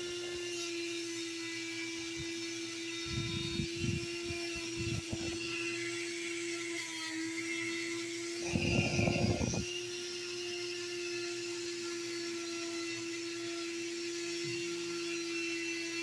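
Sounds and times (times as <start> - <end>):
rotary tool high whine: 0.0 - 16.0.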